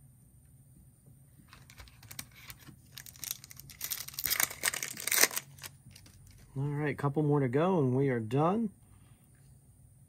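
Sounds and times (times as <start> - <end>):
foil wrapper crinkling and tearing: 1.5 - 6.5.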